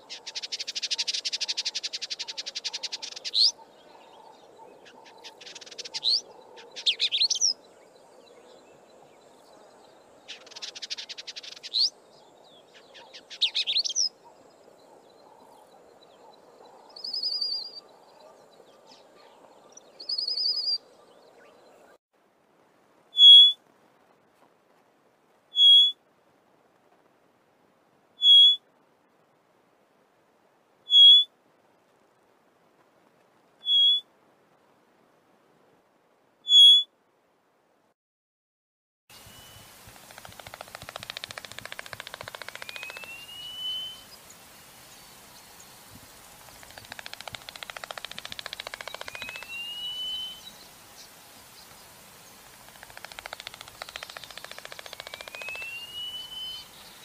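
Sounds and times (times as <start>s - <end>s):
bird whistling call: 23.2s - 23.6s, 25.5s - 26.0s, 28.2s - 28.6s, 30.9s - 31.3s, 33.6s - 34.1s, 36.5s - 36.9s, 41.6s - 44.2s, 48.3s - 50.6s, 53.0s - 57.0s
rattle of wing claps: 39.8s - 43.1s, 46.4s - 49.5s, 52.4s - 55.7s.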